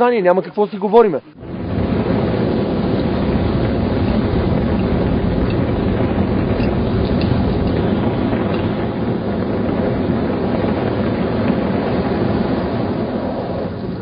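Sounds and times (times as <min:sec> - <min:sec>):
wind buffeting microphone: 0:01.4 - 0:14.0.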